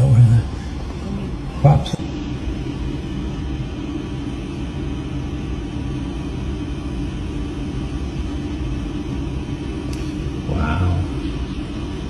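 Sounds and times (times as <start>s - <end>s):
machinery rumble and hum: 0.0s - 12.0s.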